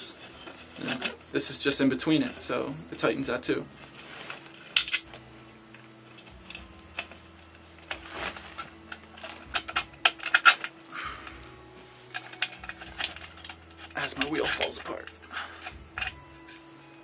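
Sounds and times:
metallic clinks: 11.0 - 14.0.

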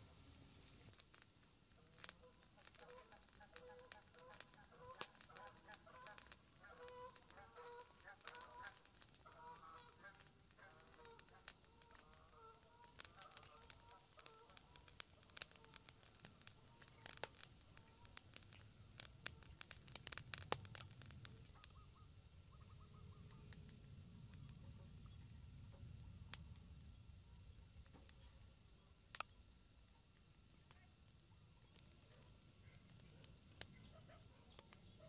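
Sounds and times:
sharp pops: 0.0 - 24.9
insects chirping: 0.0 - 35.0
meat crackling on charcoal grill: 0.0 - 35.0
birds chirping: 2.2 - 25.5.

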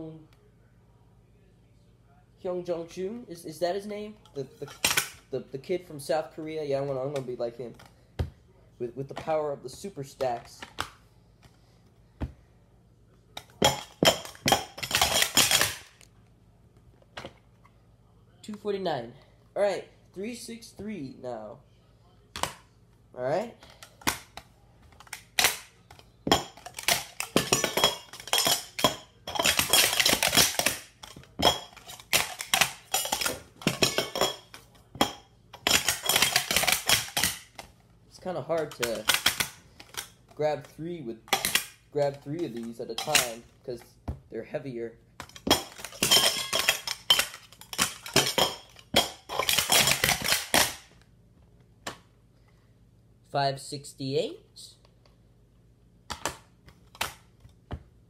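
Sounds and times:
metal cups clanking and clattering: 13.6 - 15.8, 26.3 - 37.4, 43.0 - 43.4, 45.2 - 50.8.

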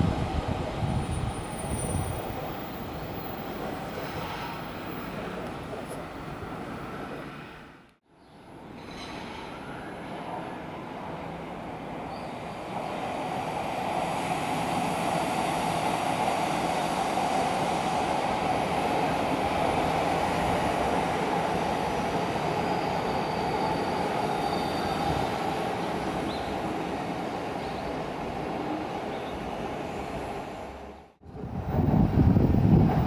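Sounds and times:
train wheels rumbling on rails: 0.0 - 7.5, 8.6 - 33.0
high wheel squeal: 22.4 - 25.5.

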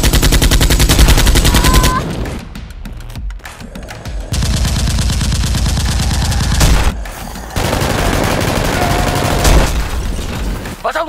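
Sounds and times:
automatic gunfire bursts: 0.0 - 2.0, 7.6 - 9.8.

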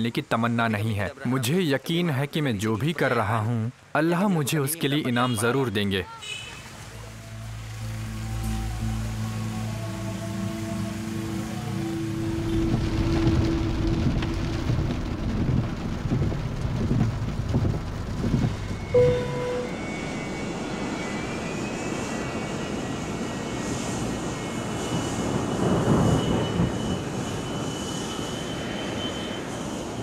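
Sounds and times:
rain: 0.0 - 30.0
high rising whine: 7.1 - 15.8, 17.8 - 30.0
jet engines inside cabin: 10.4 - 30.0
short tone: 18.8 - 21.1.

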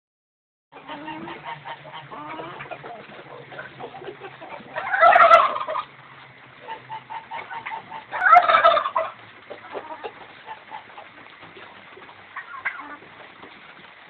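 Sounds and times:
chickens and turkeys clucking: 0.7 - 14.0
birds squawking: 0.8 - 11.2.

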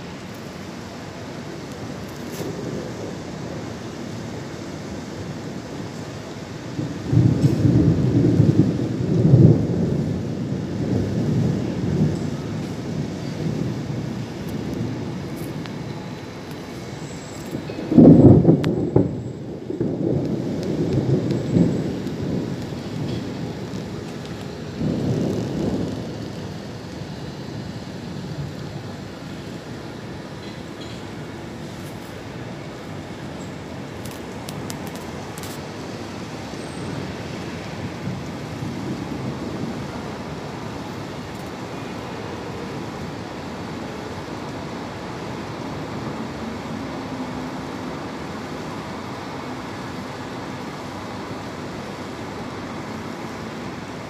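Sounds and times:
rain: 0.0 - 54.0
road traffic hum: 0.0 - 54.0
wind: 0.0 - 54.0.

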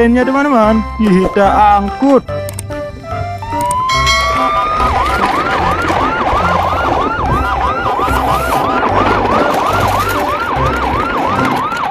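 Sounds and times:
low pulsing bass: 3.0 - 8.3
electronic yelp siren: 3.4 - 11.9.

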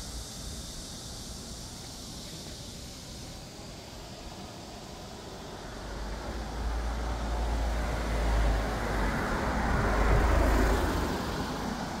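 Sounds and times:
car passing by: 5.2 - 12.0.

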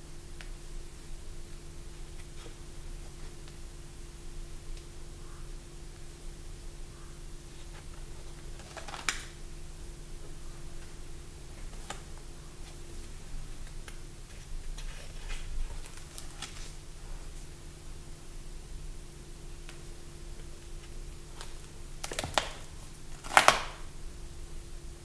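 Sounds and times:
steady low hum: 0.0 - 25.0
paper pages rustling and clicking: 7.7 - 9.4, 11.6 - 16.8, 20.8 - 23.8.

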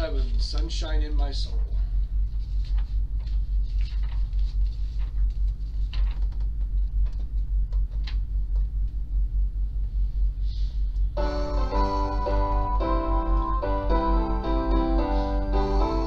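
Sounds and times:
piano hymn music: 11.2 - 16.0.

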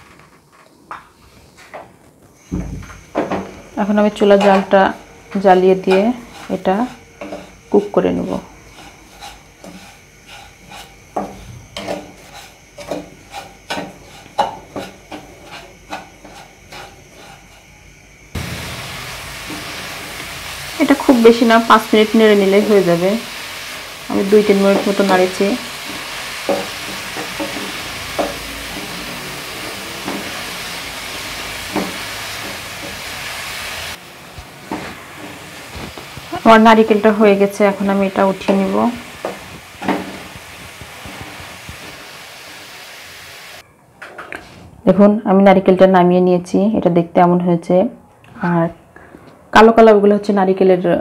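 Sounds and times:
coconut sizzling in a pan: 2.4 - 43.6
wooden spatula scraping a wok: 5.3 - 17.8, 18.4 - 43.6.

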